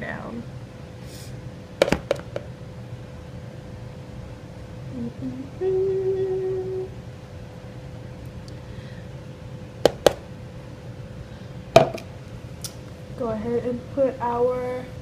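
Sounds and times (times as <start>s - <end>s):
plastic cup tapping a bowl: 1.8s - 2.5s, 9.9s - 10.2s, 11.8s - 12.0s
woman humming: 4.9s - 7.0s.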